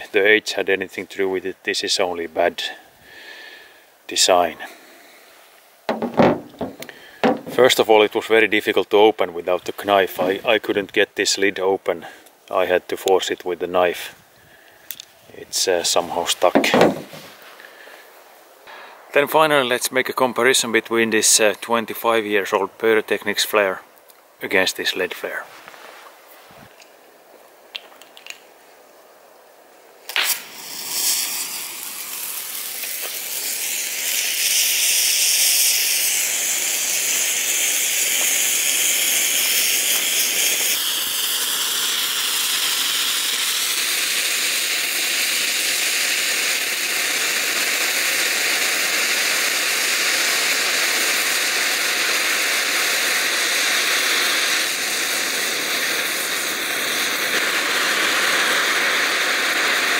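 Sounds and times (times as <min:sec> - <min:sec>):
flare burning hiss: 0:01.7 - 0:08.2, 0:13.0 - 0:19.2, 0:30.0 - 0:59.9
flare igniting pop: 0:05.9 - 0:07.8, 0:16.3 - 0:17.6, 0:30.0 - 0:34.6.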